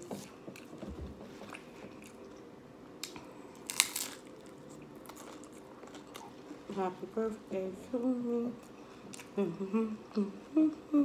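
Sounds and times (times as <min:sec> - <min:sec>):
crunching hard taco shell: 0:03.6 - 0:04.4
chewing: 0:03.8 - 0:06.7.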